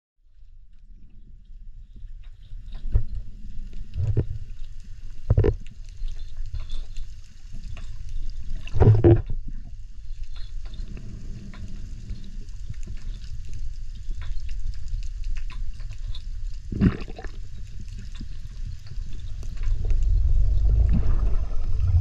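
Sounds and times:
underwater rumble of moving water: 0:00.2 - 0:22.0
dull knocks underwater: 0:05.3 - 0:05.6, 0:08.7 - 0:09.5, 0:19.5 - 0:22.0.

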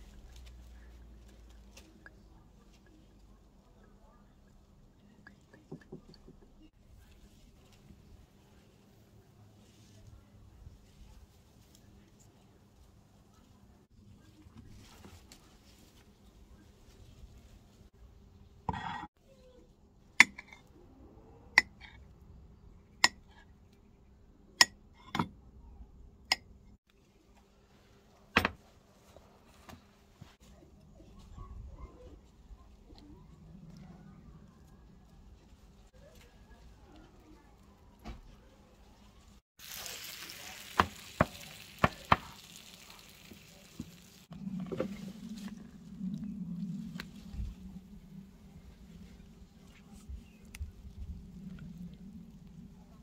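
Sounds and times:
food sizzling in baking tray: 0:39.6 - 0:44.3.

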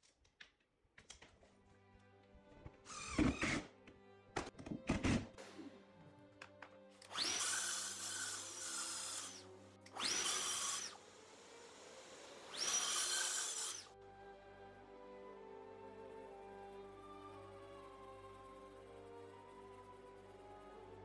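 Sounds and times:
track saw cutting board: 0:07.1 - 0:13.9.

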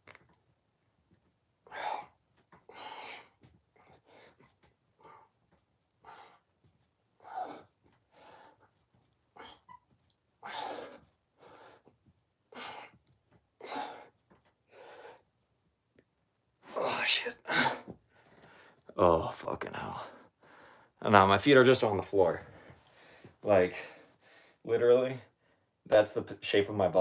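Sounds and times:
man breathing hard: 0:01.6 - 0:05.4, 0:07.2 - 0:09.7, 0:10.4 - 0:13.0, 0:13.6 - 0:15.3, 0:19.8 - 0:21.0.

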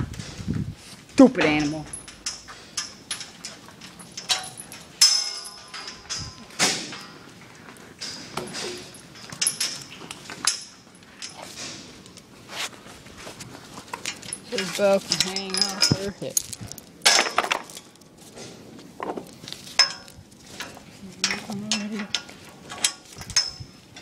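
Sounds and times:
steel gates clanking: 0:01.2 - 0:12.2, 0:13.9 - 0:18.0.

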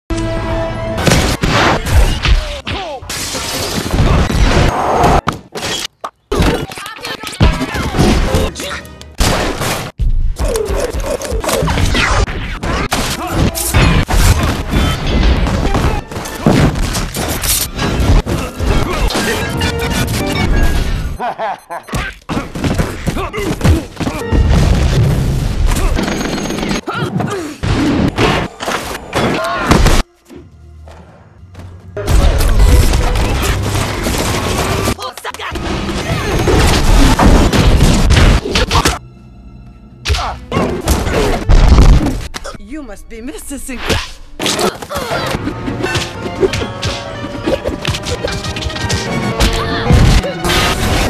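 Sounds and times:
crashes and smashes: 0:32.0 - 0:38.9.

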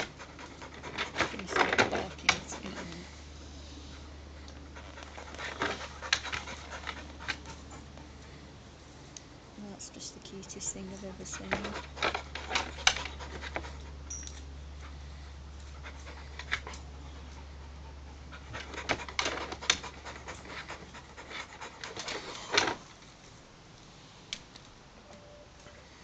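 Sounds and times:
dog panting: 0:00.0 - 0:03.2, 0:03.9 - 0:08.4, 0:10.3 - 0:14.1, 0:14.8 - 0:22.8.

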